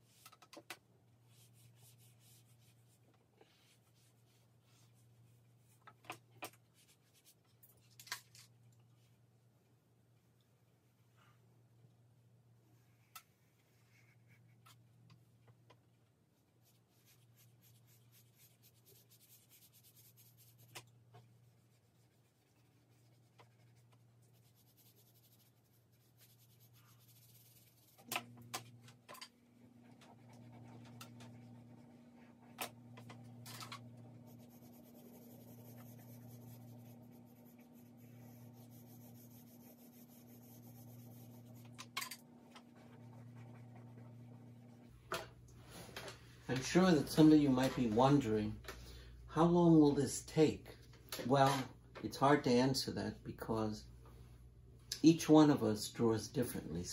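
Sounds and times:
steady low hum: 8.6s - 55.0s
pencil scratching on paper: 16.6s - 20.8s, 21.5s - 28.2s, 30.1s - 32.6s, 34.0s - 41.8s, 42.6s - 44.6s.

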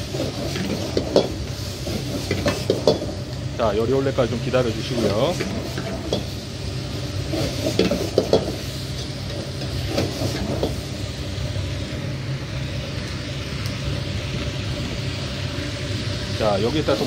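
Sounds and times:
metal ladle scraping wok: 0.0s - 3.2s, 4.9s - 6.4s, 7.2s - 10.9s
food sizzling: 0.0s - 17.0s
low fan hum: 0.0s - 17.0s.

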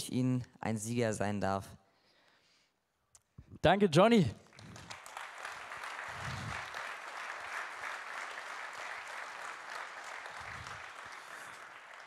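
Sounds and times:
crowd applauding: 4.4s - 12.0s.

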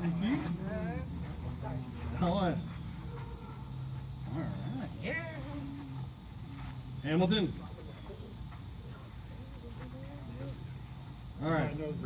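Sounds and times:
insects trilling: 0.0s - 12.0s
men's voices: 4.2s - 5.9s.

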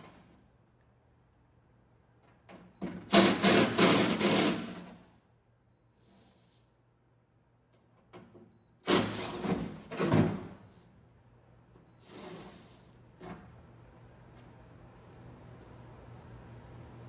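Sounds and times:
cordless drill running in bursts: 3.2s - 4.8s.

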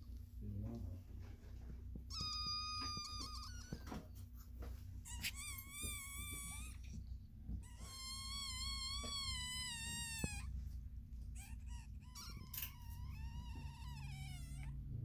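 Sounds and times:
puppies crying: 2.1s - 4.2s, 5.0s - 10.6s, 11.2s - 15.0s.

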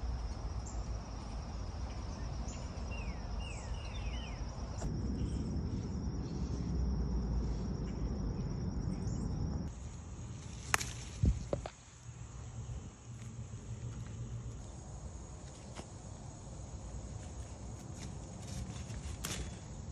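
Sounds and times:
insects trilling: 0.0s - 19.9s
low rumble: 4.5s - 14.6s.

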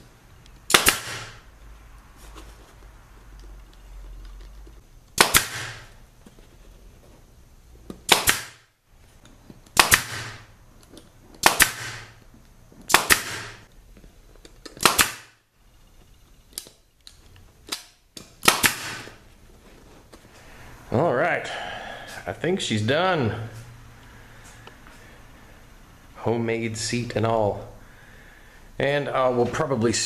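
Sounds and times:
staple gun snapping: 0.7s - 1.3s, 5.2s - 5.8s, 8.1s - 8.6s, 11.4s - 12.0s, 12.9s - 13.5s, 17.7s - 19.1s.

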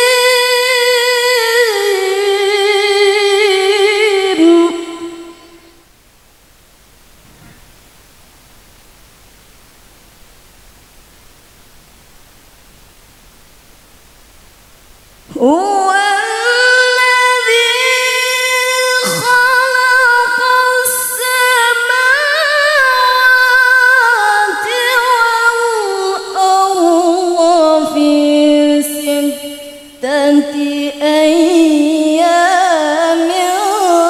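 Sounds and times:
woman chanting recitation: 0.0s - 5.7s, 15.3s - 34.0s.

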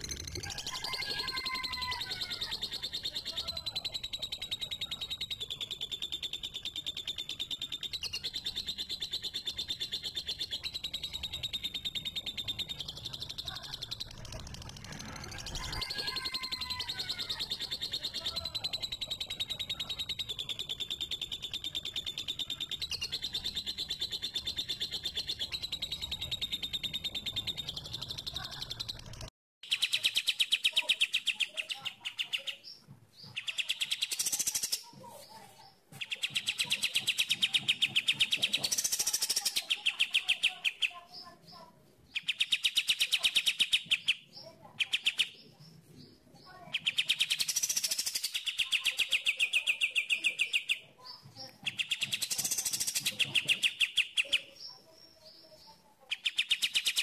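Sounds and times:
fast high-pitched bird trill: 0.0s - 32.6s, 46.5s - 54.7s
lower bird chirps: 0.0s - 57.0s.

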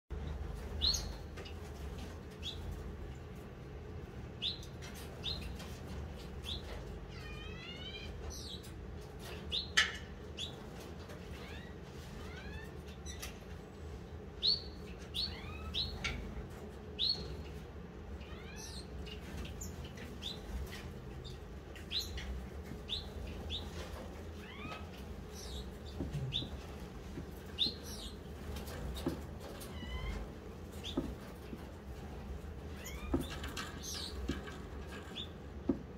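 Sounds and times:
low steady hum: 0.1s - 35.9s
finches chirping: 0.8s - 1.3s, 14.4s - 16.2s, 18.2s - 23.8s, 24.4s - 26.8s, 27.4s - 31.2s, 32.7s - 35.4s.

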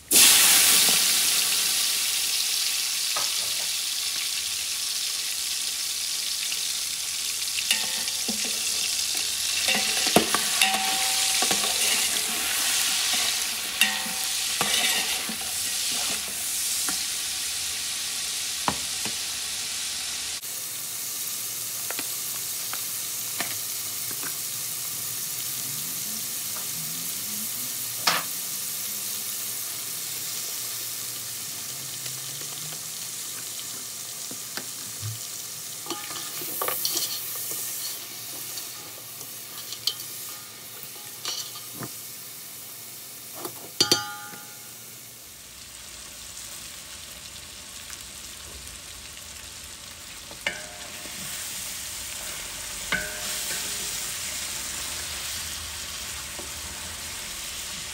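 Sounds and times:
meat sizzling in hot oil: 0.0s - 57.9s
utensil scraping a metal pot: 7.7s - 17.0s, 35.9s - 38.9s.

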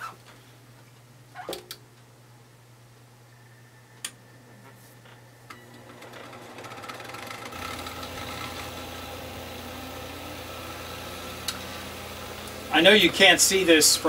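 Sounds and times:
motor whirring hum: 5.6s - 14.0s.

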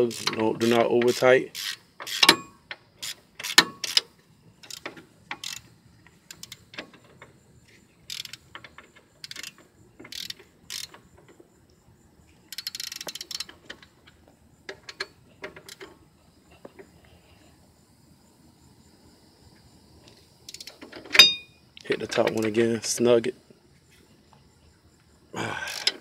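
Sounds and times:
socket ratchet clicking: 1.1s - 5.7s, 6.3s - 6.8s, 8.1s - 11.0s, 12.5s - 13.5s, 20.5s - 21.4s.

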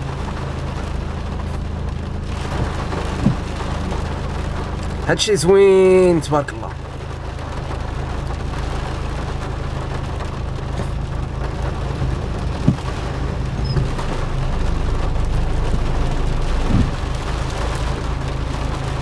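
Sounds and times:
windscreen wiper thuds: 0.0s - 5.0s, 9.4s - 19.0s
car engine idling: 0.0s - 19.0s
heavy rain drumming on car roof: 0.0s - 19.0s.

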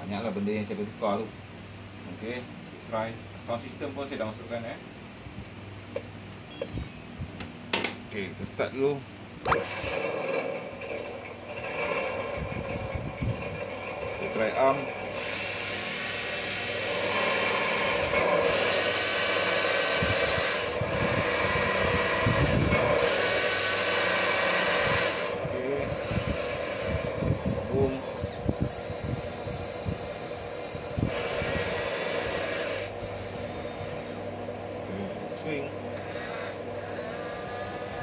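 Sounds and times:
model excavator motor whirring: 9.4s - 34.3s, 36.0s - 38.0s.

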